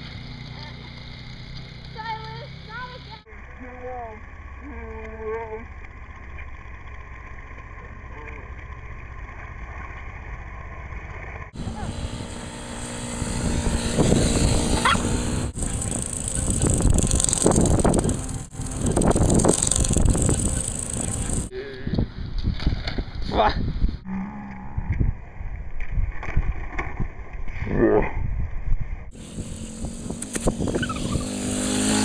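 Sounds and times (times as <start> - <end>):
quad engine running: 0.0 - 21.5, 29.1 - 32.0
outdoor hum: 0.0 - 32.0
wind buffeting microphone: 11.5 - 32.0.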